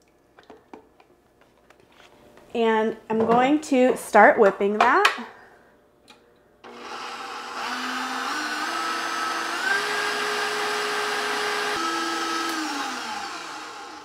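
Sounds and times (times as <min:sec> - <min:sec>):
stand mixer motor whirring: 0:06.7 - 0:14.0.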